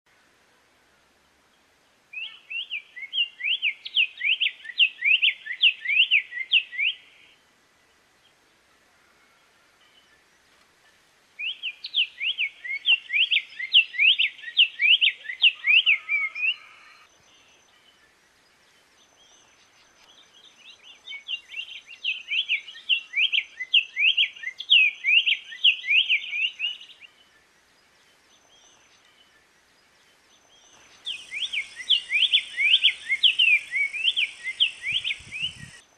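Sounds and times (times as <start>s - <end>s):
bird singing warbled notes: 30.1s - 35.8s.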